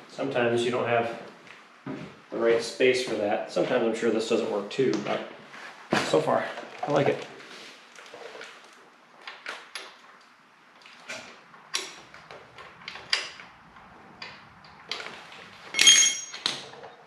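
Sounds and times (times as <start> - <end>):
ringing metallic clink: 15.8 - 16.5.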